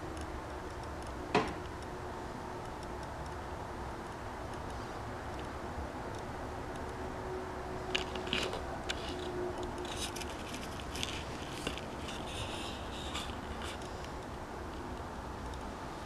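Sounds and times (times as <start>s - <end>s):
low steady hum: 0.0s - 16.0s
faint scraping and clicking handling: 7.9s - 14.9s.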